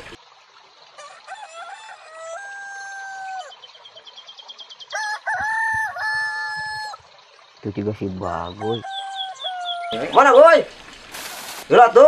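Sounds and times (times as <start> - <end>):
rooster crowing: 1.0 - 3.5, 4.9 - 7.0, 8.6 - 10.1.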